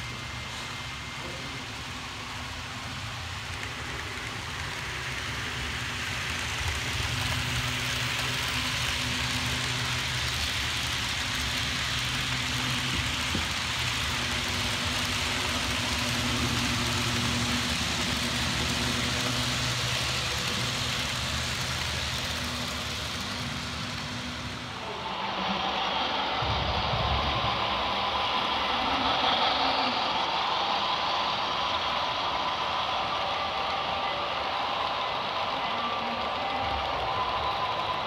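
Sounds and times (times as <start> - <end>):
model train rattling on rails: 0.0 - 38.0.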